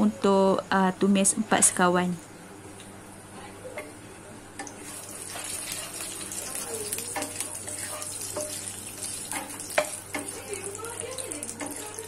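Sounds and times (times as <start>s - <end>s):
oil sizzling in a frying pan: 4.6s - 12.0s
wooden spatula scraping a pan: 7.1s - 9.6s.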